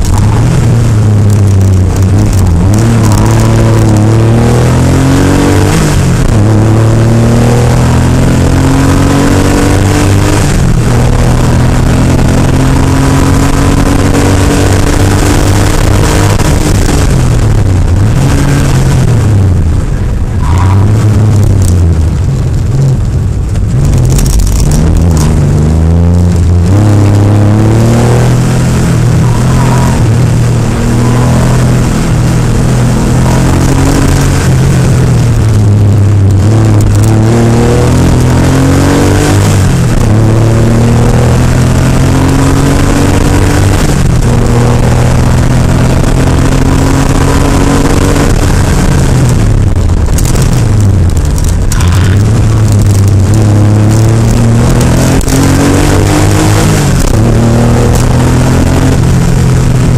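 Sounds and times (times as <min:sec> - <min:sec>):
rally car engine revving: 0:00.0 - 0:59.9.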